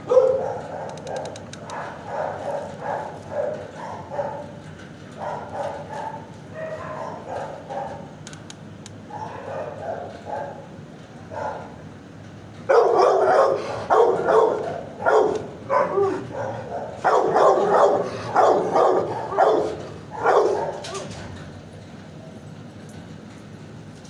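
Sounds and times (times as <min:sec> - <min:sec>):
dog barking: 0:00.0 - 0:04.6, 0:05.2 - 0:08.0, 0:09.1 - 0:10.6, 0:11.3 - 0:11.8, 0:12.7 - 0:21.1.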